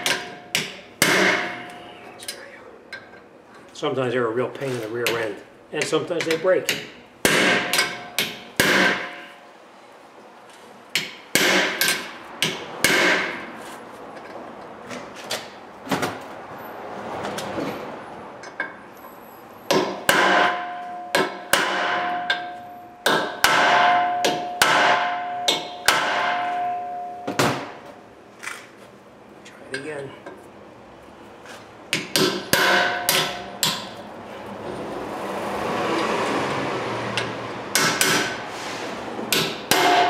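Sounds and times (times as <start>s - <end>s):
hammer striking metal: 0.0s - 1.9s, 5.0s - 9.4s, 11.0s - 13.5s, 19.7s - 27.8s, 31.9s - 34.0s, 37.2s - 38.5s, 39.3s - 40.0s
ringing metallic tone: 26.4s - 27.4s.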